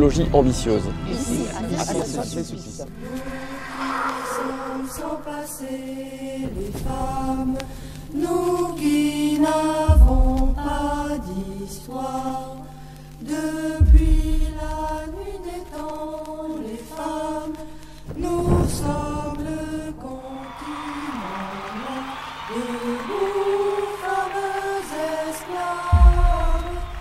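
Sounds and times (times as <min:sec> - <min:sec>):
chant-like melody over drone: 0:01.8 - 0:27.0
deep bass hits: 0:13.8 - 0:15.2.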